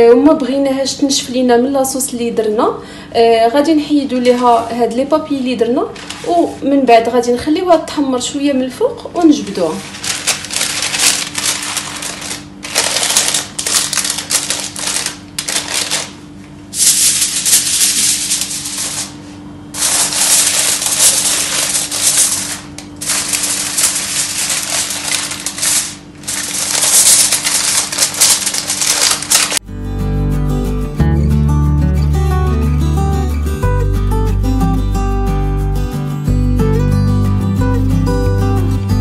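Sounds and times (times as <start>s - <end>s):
aluminium foil crinkling: 5.9s - 6.5s, 9.3s - 29.6s
acoustic guitar music: 29.6s - 39.0s.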